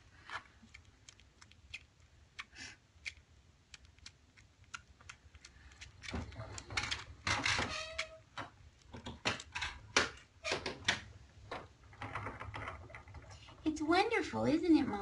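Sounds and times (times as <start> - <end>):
kittens suckling clicks: 0.3 - 7.4.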